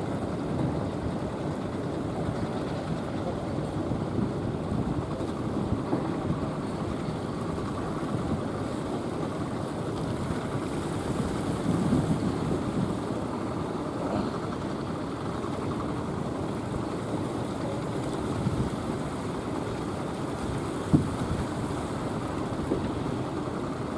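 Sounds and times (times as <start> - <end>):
boat engine running: 0.0 - 23.9
heavy surf breaking: 4.1 - 23.9
wind on microphone: 10.1 - 13.7, 20.3 - 23.1.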